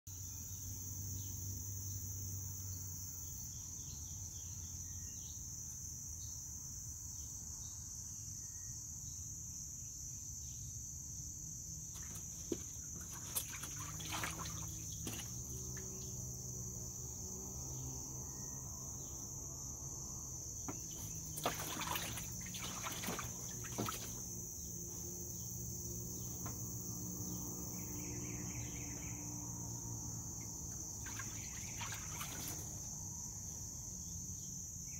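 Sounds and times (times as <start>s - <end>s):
insects chirring: 0.1s - 34.9s
animal splashing in water: 11.9s - 16.2s, 20.7s - 24.4s, 31.0s - 32.9s.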